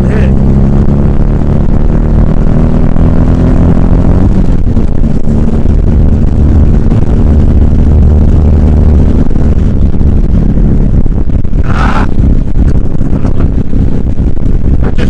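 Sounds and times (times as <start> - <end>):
motorcycle engine cruising: 0.0 - 15.0.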